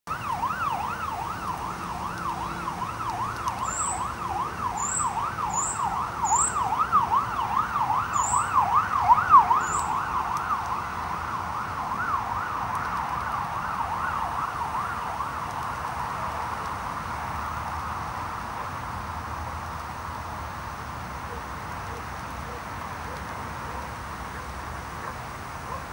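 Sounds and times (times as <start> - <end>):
siren yelping: 0.1 - 16.6.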